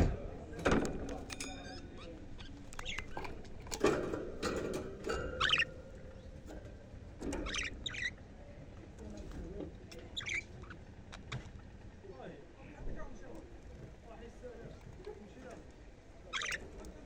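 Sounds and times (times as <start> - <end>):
budgerigars chirping: 1.6 - 3.4, 5.1 - 8.3, 9.9 - 11.2, 16.3 - 16.8.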